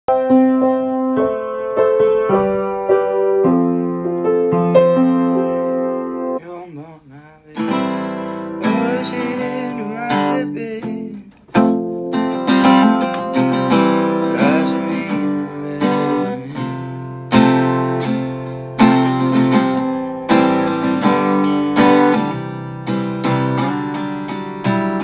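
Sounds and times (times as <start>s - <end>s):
acoustic guitar picked notes: 6.2s - 25.0s
acoustic guitar chords strummed: 7.5s - 25.0s.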